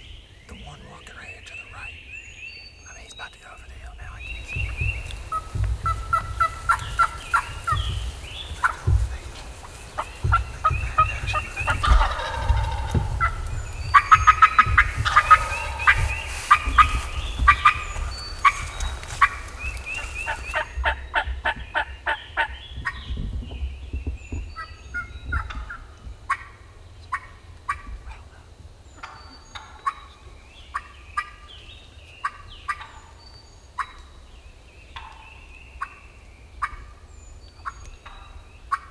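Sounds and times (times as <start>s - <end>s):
turkeys yelping: 4.4s - 23.0s, 25.0s - 28.4s, 29.0s - 31.5s, 32.2s - 33.1s, 37.6s - 38.9s
turkeys gobbling: 4.4s - 23.1s, 25.0s - 28.4s, 29.0s - 31.5s, 32.2s - 33.1s, 36.6s - 37.0s, 37.6s - 38.9s.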